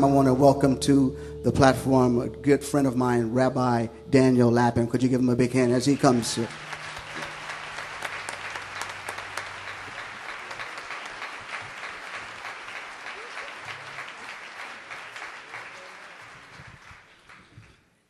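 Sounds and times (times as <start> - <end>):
large audience applauding: 5.9 - 18.0.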